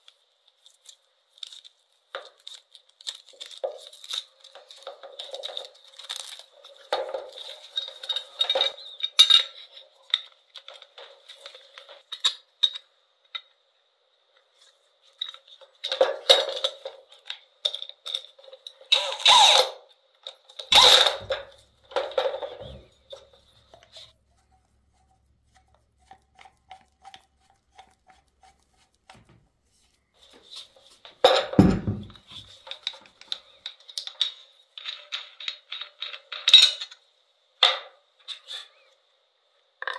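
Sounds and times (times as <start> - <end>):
tool parts rattling on metal table: 3.7 - 12.8, 15.3 - 24.1, 31.2 - 37.0
tools clunking down: 20.7 - 24.0.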